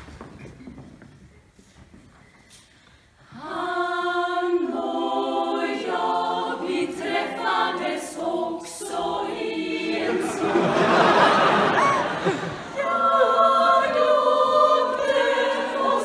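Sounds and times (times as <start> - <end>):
women's choir singing: 3.3 - 16.0.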